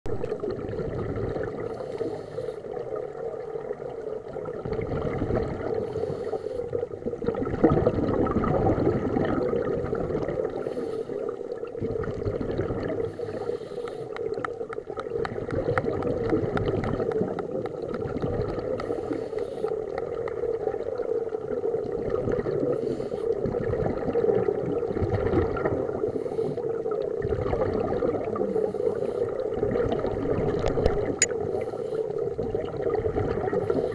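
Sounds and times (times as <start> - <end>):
exhaled bubbles gurgling: 0.1 - 33.9
scuba regulator breathing: 1.6 - 2.9, 5.8 - 6.9, 10.5 - 11.5, 12.9 - 14.5, 18.7 - 20.1, 22.6 - 23.4, 26.0 - 26.9, 28.4 - 29.6, 31.3 - 32.4, 33.5 - 33.9.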